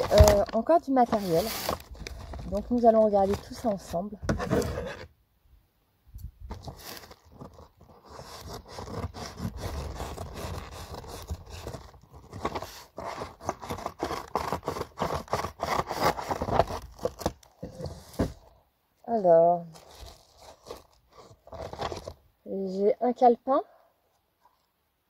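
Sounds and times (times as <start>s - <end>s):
paper parcel rustling: 0.0s - 5.1s, 6.5s - 18.5s, 19.6s - 22.2s
scissors cutting paper: 13.0s - 16.5s.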